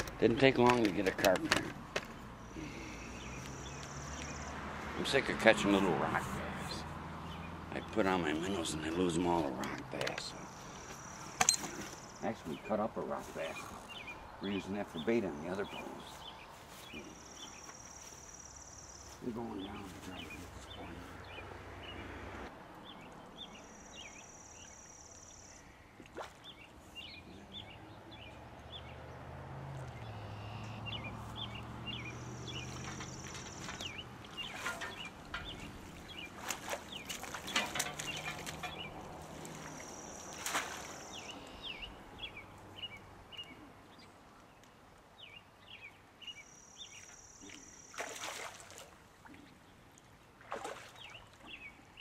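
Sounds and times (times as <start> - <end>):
birds singing: 0.0 - 48.5, 50.6 - 52.0
water splashes: 26.0 - 27.0, 31.1 - 43.1, 46.9 - 52.0.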